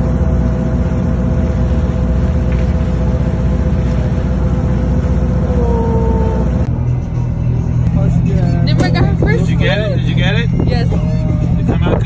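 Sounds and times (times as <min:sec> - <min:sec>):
water rushing past hull: 0:00.0 - 0:06.9
boat engine rumbling: 0:00.0 - 0:12.0
wind: 0:00.0 - 0:12.0.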